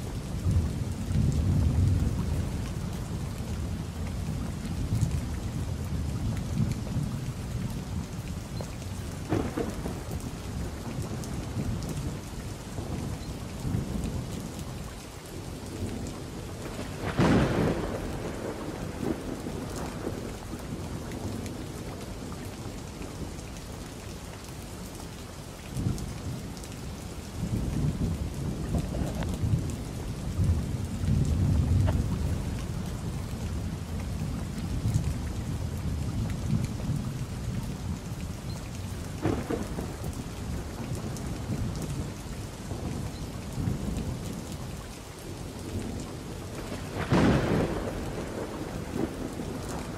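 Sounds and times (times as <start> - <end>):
steady rain: 0.0 - 49.9
sharp thunderclap: 9.3 - 10.0, 16.7 - 20.3, 27.8 - 29.7, 39.2 - 40.0, 46.6 - 49.9
deep thunder rumbles: 9.3 - 12.2, 16.6 - 21.6, 27.4 - 38.0, 39.2 - 44.3, 45.7 - 49.9.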